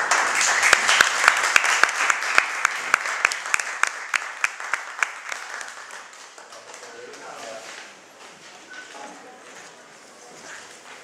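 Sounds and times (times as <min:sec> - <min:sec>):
small audience applauding: 0:00.0 - 0:07.6.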